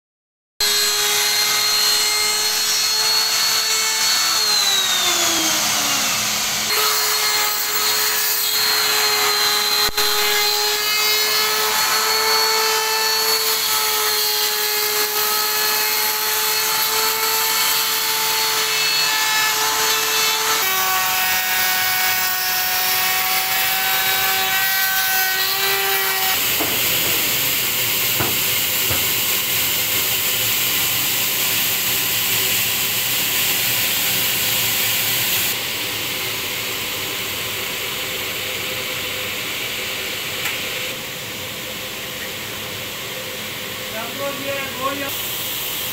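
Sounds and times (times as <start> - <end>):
electric router motor whine: 0.6 - 20.8, 22.6 - 30.4
power tool whine: 0.6 - 41.8.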